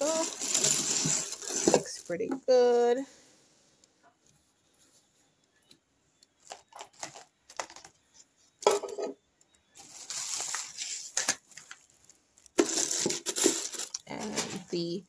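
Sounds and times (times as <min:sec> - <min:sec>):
packaging rustling: 0:00.0 - 0:02.2, 0:06.4 - 0:07.9, 0:09.8 - 0:14.3.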